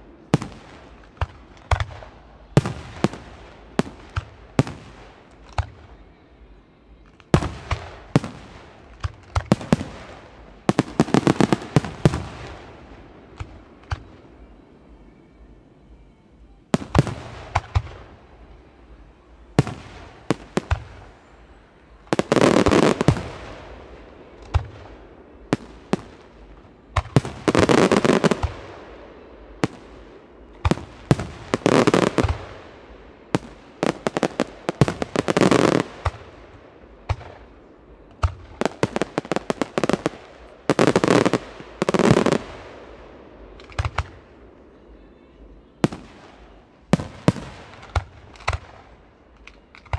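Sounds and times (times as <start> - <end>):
firework bangs: 7.3 - 14.1, 19.5 - 21.3, 22.0 - 44.4, 45.8 - 49.9.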